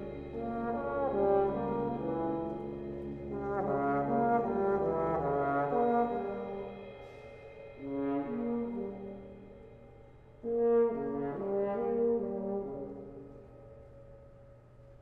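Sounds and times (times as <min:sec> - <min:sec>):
brass ensemble playing chords: 0:00.0 - 0:06.7, 0:10.4 - 0:13.3.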